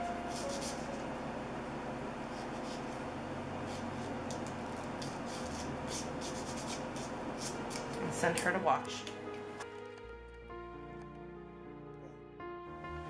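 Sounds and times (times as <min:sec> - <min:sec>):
nail buffer scratching on nail: 0:00.3 - 0:00.9, 0:03.6 - 0:08.6.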